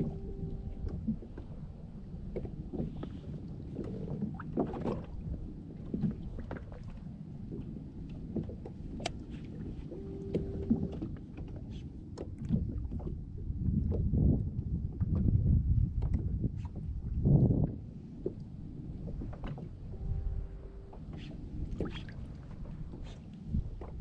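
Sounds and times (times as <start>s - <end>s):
short steady tone: 0.0s - 1.1s, 9.8s - 11.1s, 19.9s - 21.4s
water lapping against kayak hull: 0.0s - 24.0s.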